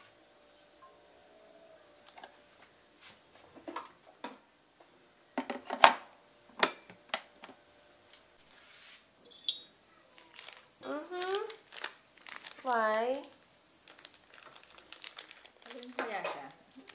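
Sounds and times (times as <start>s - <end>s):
ringing clink: 9.3s - 9.7s.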